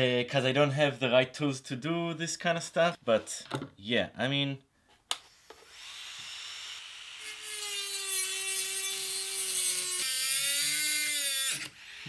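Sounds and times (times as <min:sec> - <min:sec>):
rotary tool motor whine: 0:05.7 - 0:12.0.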